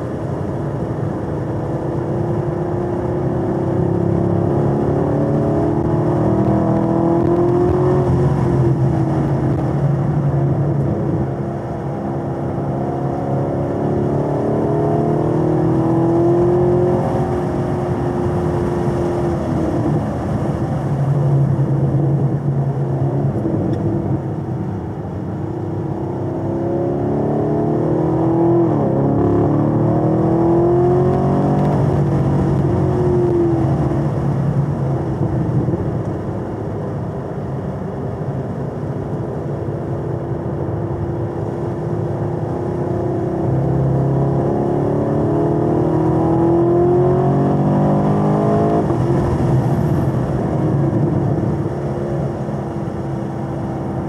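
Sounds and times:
car engine revving from inside: 2.6 - 24.2, 25.8 - 34.3, 42.2 - 53.1.

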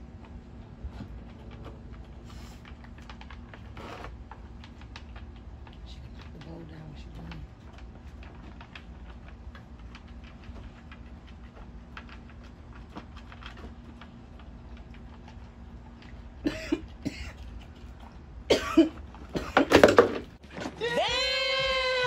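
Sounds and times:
dog chewing food from bowl: 0.0 - 20.5
dog coughing: 16.4 - 17.7, 18.5 - 20.1.

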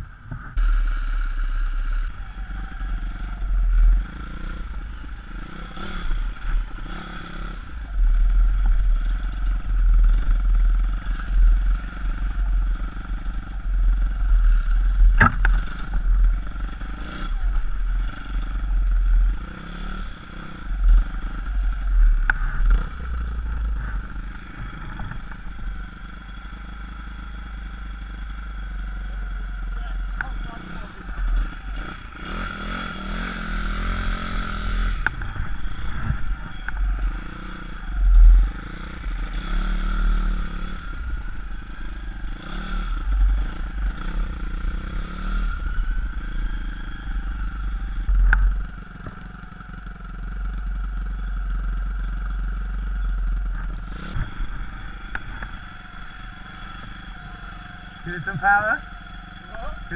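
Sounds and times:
motorbike engine revving: 0.0 - 59.9
wind rumbling on microphone: 34.5 - 37.2.

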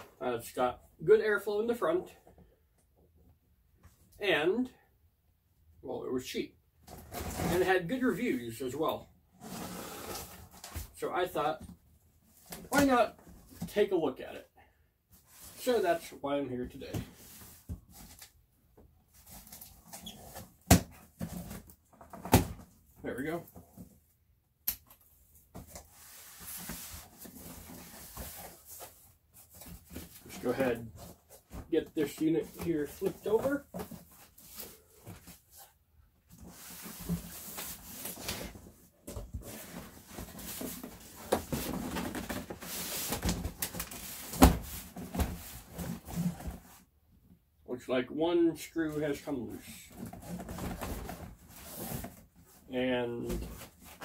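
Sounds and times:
cardboard scraping and rustling: 9.4 - 11.0, 25.6 - 46.8, 49.8 - 52.6.

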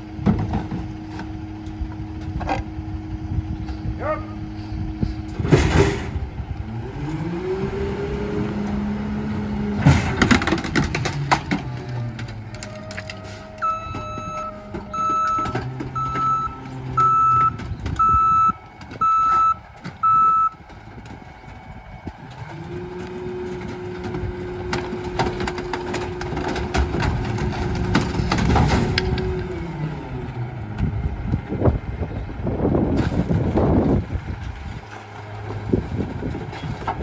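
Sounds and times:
truck engine drone: 0.0 - 37.0
clanks and clatter: 9.8 - 16.4, 20.6 - 29.5
backup alarm beeping: 13.5 - 20.6.

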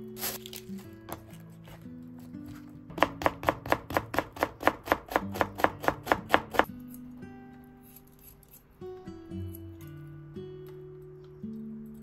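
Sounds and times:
knife chopping stalks on board: 2.5 - 6.7.

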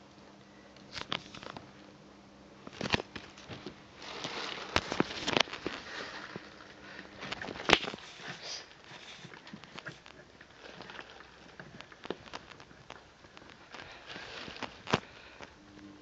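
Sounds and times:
cat rustling on upholstered seat: 3.4 - 12.6, 13.6 - 15.4.

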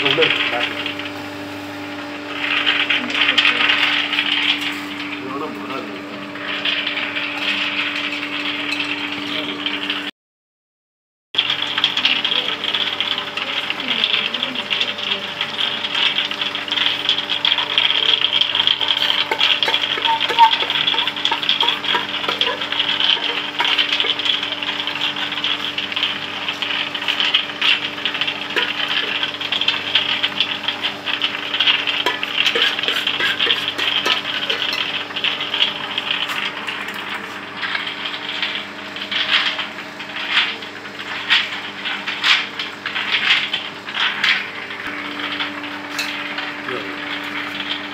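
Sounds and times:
electric motor hum: 0.0 - 10.1, 11.4 - 39.1
nuts rattling in metal pan: 11.4 - 40.5
hand stirring nuts scraping: 18.2 - 25.8, 31.9 - 34.9.

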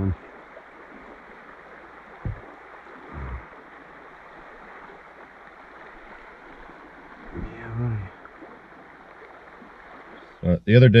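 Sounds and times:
stream water running: 0.0 - 11.0
soft low thumps: 2.2 - 3.5.

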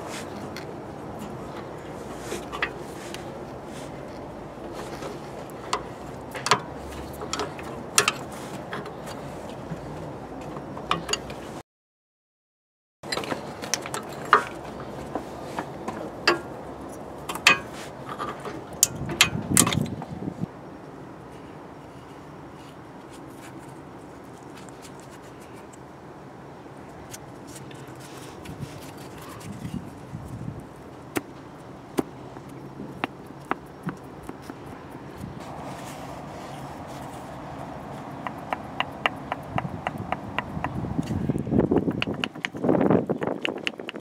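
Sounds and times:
hands rustling and clicking metal part: 0.3 - 11.5, 13.1 - 20.1, 27.0 - 35.6, 36.6 - 44.0.

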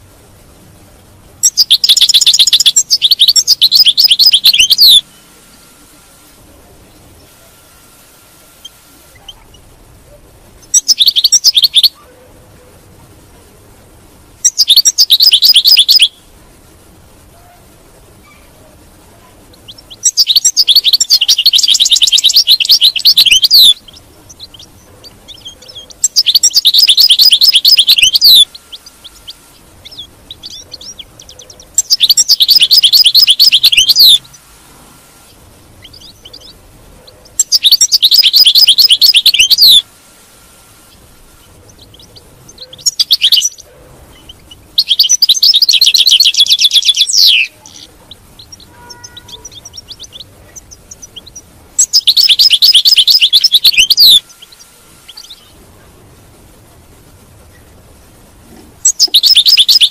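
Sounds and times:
goldfinch twittering song: 1.4 - 5.3, 10.6 - 12.0, 14.4 - 16.2, 19.5 - 34.4, 35.8 - 36.6, 37.2 - 39.8, 41.7 - 55.6, 58.8 - 59.9
faint bird chirps: 1.4 - 7.8, 8.4 - 12.8, 14.4 - 16.4, 17.3 - 34.4, 35.2 - 39.9, 40.9 - 55.6, 58.8 - 59.9.

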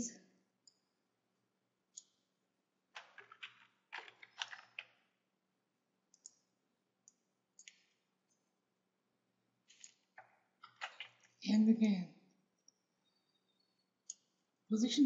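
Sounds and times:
keyboard keystrokes and clicks: 2.9 - 5.1, 6.1 - 8.1, 9.7 - 11.4.

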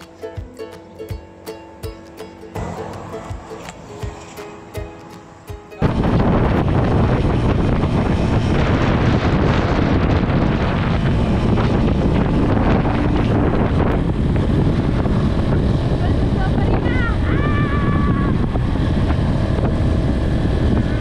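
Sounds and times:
soft music: 0.0 - 7.4
wind buffeting microphone: 2.6 - 21.0.

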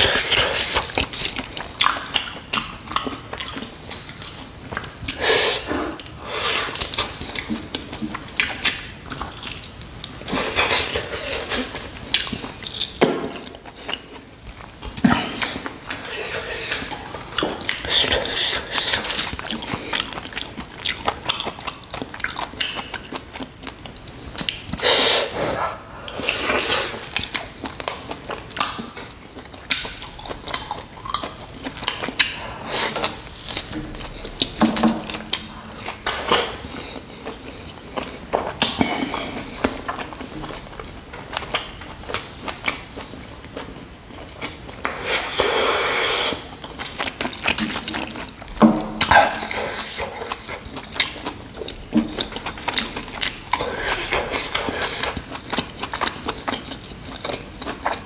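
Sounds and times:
wet chewing: 0.0 - 58.0
lip smacks: 44.4 - 58.0.

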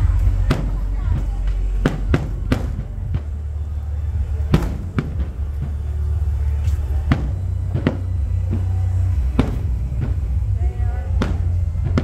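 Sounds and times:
steady low rumble: 0.0 - 12.0
firework shells bursting: 4.2 - 12.0.

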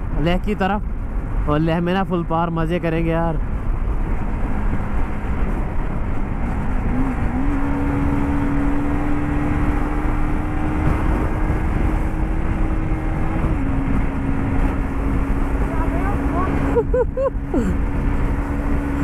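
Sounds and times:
road noise: 0.0 - 19.0
wind rushing: 3.4 - 19.0.

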